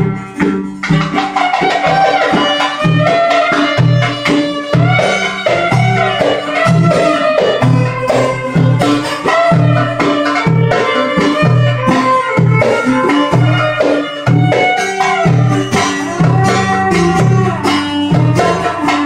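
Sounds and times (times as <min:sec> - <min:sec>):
hand drum beating: 0:00.0 - 0:19.0
plucked string melody: 0:00.0 - 0:19.0.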